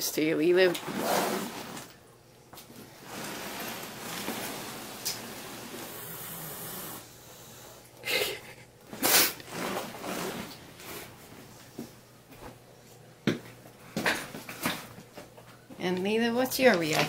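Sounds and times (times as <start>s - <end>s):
cat hissing: 5.8s - 7.1s, 8.9s - 9.4s.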